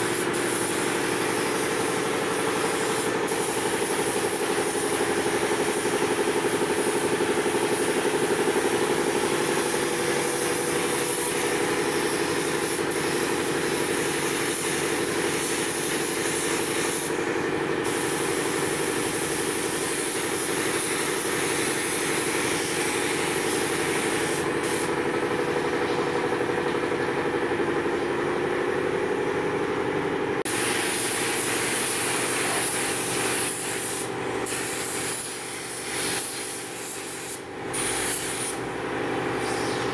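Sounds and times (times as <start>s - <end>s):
paint spray gun hissing: 0.0s - 25.1s, 30.5s - 38.7s
steady machine hum: 22.3s - 30.6s.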